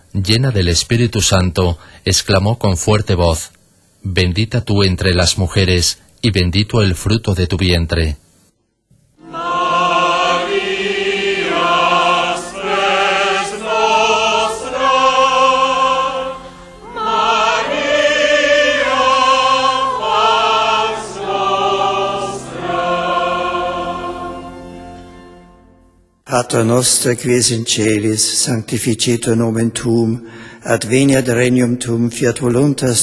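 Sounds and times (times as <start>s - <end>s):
slow sacred singing: 9.1s - 25.2s
soft continuous accompaniment: 9.1s - 33.0s.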